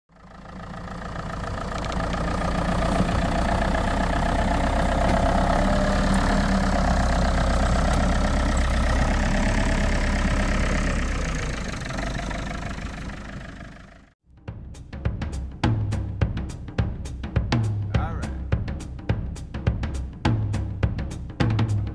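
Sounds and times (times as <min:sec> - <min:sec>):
engine running steadily: 0:00.1 - 0:14.1.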